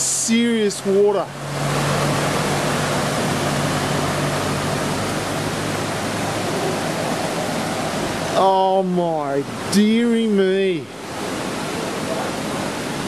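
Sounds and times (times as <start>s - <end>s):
truck engine humming: 0.0s - 9.7s
heavy rain pouring: 0.0s - 13.0s.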